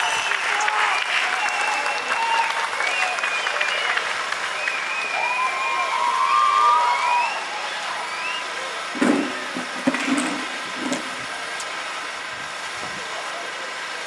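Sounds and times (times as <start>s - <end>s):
open-air background noise: 0.0s - 14.0s
sharp knock: 9.0s - 11.1s.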